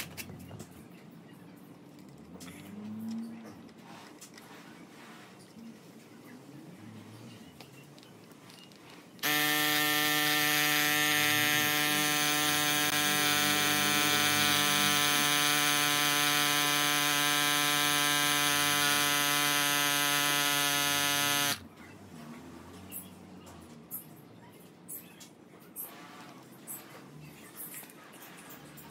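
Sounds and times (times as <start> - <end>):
electric air pump buzzing: 9.2 - 21.6.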